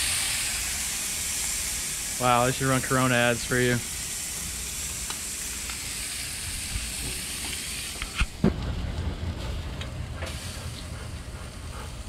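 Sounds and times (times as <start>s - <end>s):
food sizzling in a pan: 0.0s - 8.4s.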